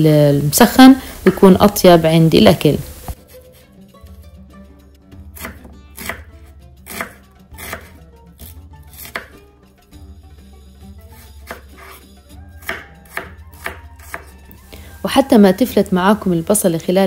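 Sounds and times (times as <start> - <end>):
knife cutting onion on board: 5.3 - 9.4, 11.1 - 14.6.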